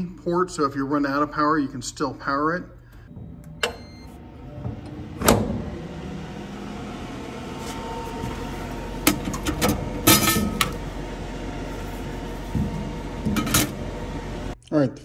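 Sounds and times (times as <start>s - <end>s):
metal clunk of safe door: 3.2s - 5.9s.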